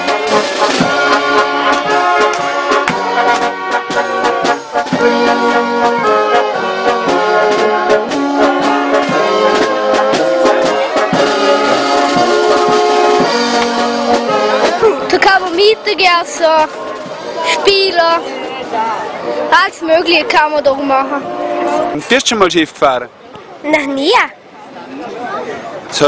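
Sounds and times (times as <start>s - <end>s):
drum strokes: 0.0s - 22.6s
brass band playing: 0.0s - 22.8s.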